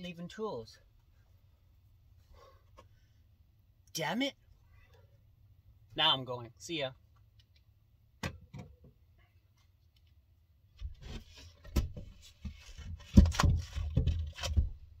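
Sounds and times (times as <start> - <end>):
heavy thumps and knocks: 10.8 - 14.9
wooden hatch scraping: 10.8 - 15.0.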